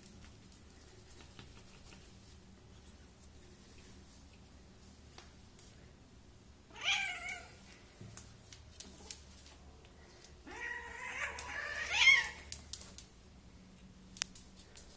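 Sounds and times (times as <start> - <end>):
cat meowing: 6.7 - 7.6, 10.5 - 12.5.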